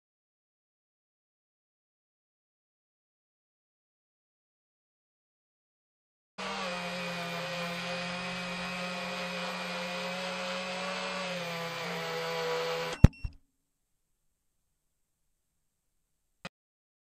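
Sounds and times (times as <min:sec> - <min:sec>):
quadcopter motors whining: 0:06.4 - 0:13.1.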